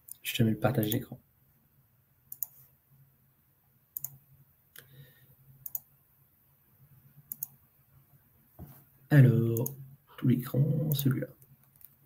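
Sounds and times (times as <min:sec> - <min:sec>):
computer mouse double clicks: 0:07.3 - 0:07.5.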